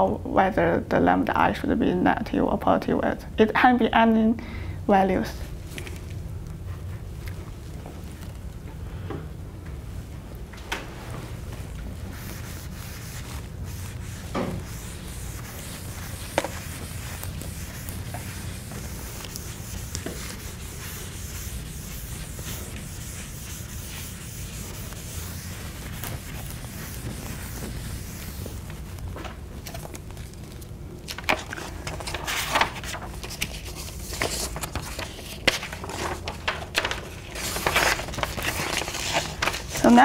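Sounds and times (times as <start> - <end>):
paper rustling: 11.1 - 40.0
eraser rubbing chalkboard: 12.1 - 28.8.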